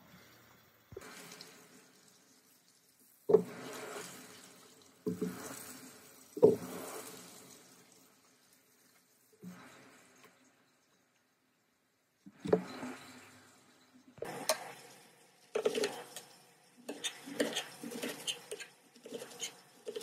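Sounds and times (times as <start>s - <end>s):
water splashes: 0.0s - 10.6s.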